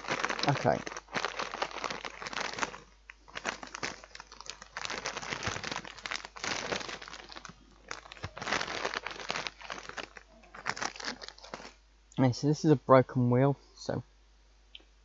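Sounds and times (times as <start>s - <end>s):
plastic snack packet crinkling: 0.0s - 11.8s.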